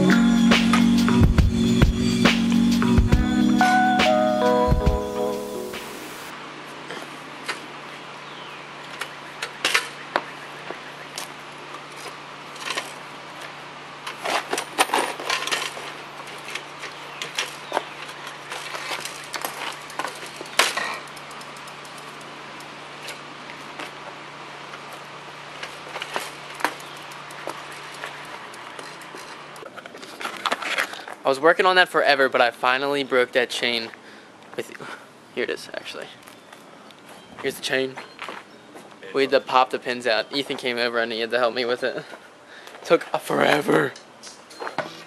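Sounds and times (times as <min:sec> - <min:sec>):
metallic clicks of bicycle parts: 0:19.0 - 0:23.2, 0:25.6 - 0:29.7.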